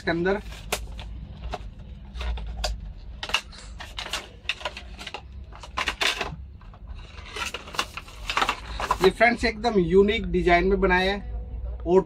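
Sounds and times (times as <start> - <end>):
cardboard and plastic packaging handling: 0.0 - 9.5.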